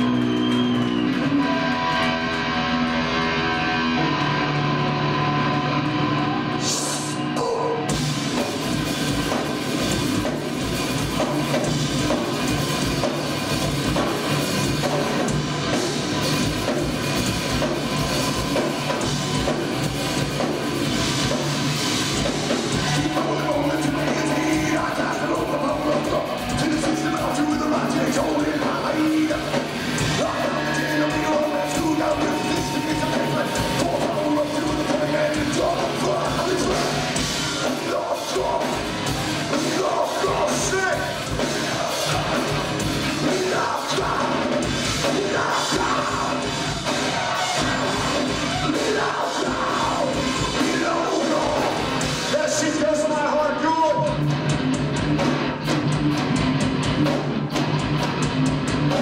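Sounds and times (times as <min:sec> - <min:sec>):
metal band playing live: 0:00.0 - 0:59.0
singer yelling: 0:06.2 - 0:08.0, 0:22.5 - 0:54.2.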